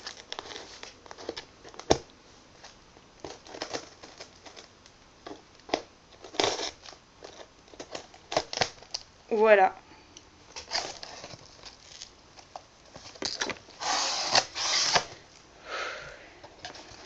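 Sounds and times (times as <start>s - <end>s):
scissors cutting packing tape: 6.2s - 9.0s, 13.8s - 15.2s.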